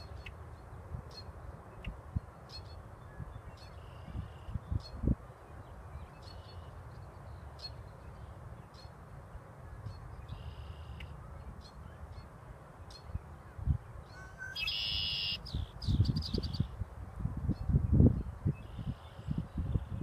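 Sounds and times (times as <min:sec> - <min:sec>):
blackbird buzzy trill song: 0:09.8 - 0:16.9
blackbird chip notes: 0:14.2 - 0:15.5.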